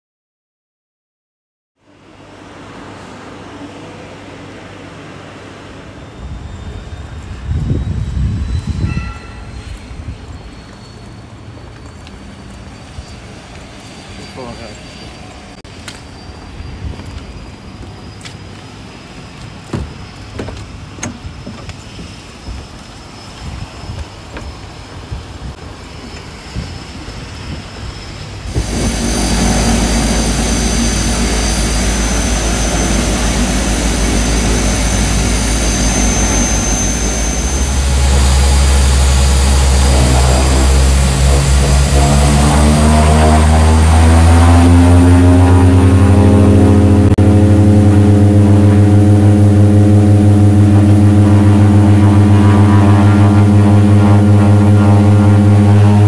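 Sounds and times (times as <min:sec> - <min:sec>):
propeller engines inside cabin: 0:18.9 - 0:56.0.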